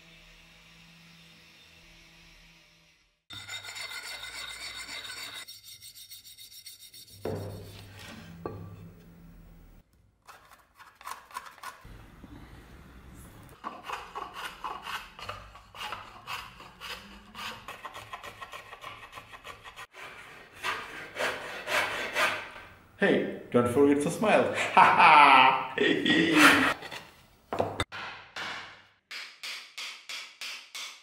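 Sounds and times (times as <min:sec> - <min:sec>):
hand rasp scraping wood: 0:03.3 - 0:08.2, 0:10.3 - 0:11.9, 0:13.6 - 0:22.7, 0:26.1 - 0:27.1.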